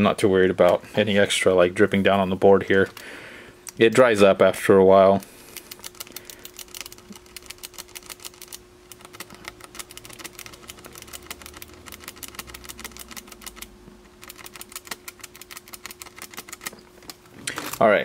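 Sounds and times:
faint steady hum: 0.0 - 18.0
small switches clicking rapidly: 5.6 - 16.8.

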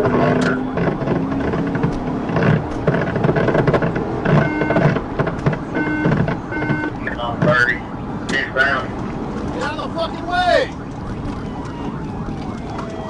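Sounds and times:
short repeated tones: 5.7 - 7.0.

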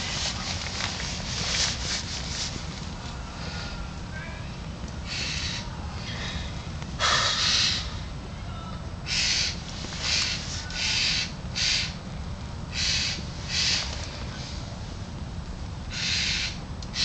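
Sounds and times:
jay harsh rasping calls: 5.0 - 5.7, 7.0 - 8.0, 9.0 - 12.0, 12.7 - 13.9, 15.9 - 17.0.

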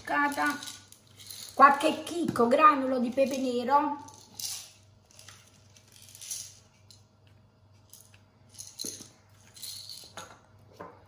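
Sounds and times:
peppercorns rattling in plastic jar: 0.0 - 2.1.

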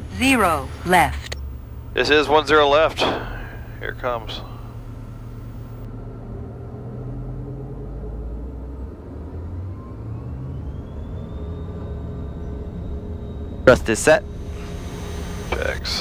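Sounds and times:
jet engines spooling up: 0.1 - 5.9, 9.4 - 16.0.

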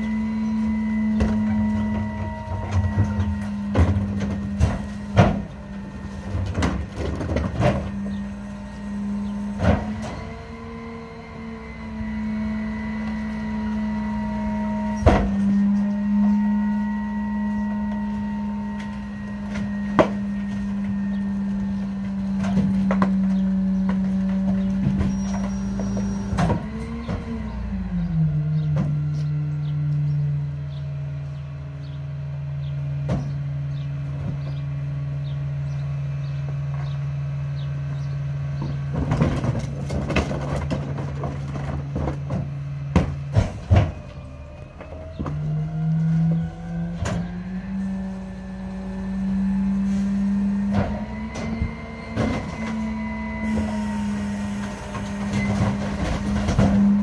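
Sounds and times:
garbage truck engine droning: 0.0 - 57.0
trash knocking into hopper: 0.8 - 8.3, 14.9 - 15.8, 38.6 - 44.2, 50.6 - 57.0.

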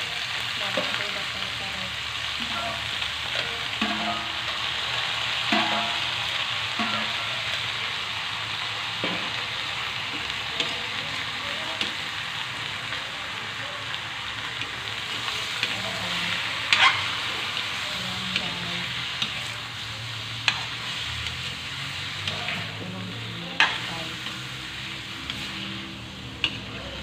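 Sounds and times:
food sizzling in a wok: 0.0 - 27.0
metal spatula clinking on pan: 16.7 - 17.1.

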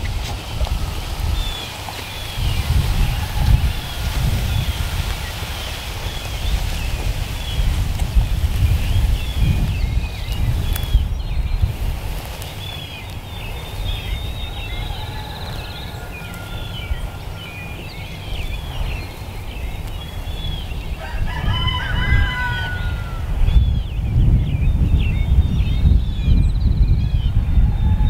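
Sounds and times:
small birds chirping: 0.0 - 28.0
wind buffeting microphone: 0.0 - 28.0
rooster crowing: 3.0 - 4.7, 14.4 - 17.7, 21.0 - 23.4.

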